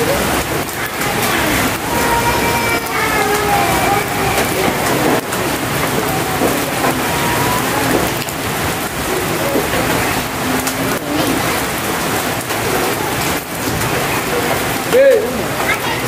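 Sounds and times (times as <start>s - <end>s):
steady rainfall: 0.0s - 16.0s.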